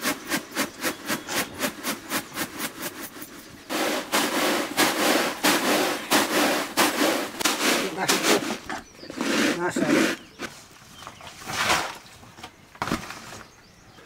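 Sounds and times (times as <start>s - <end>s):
rhythmic knocks on wood: 0.0s - 9.4s
rough scraping strokes: 0.0s - 10.7s.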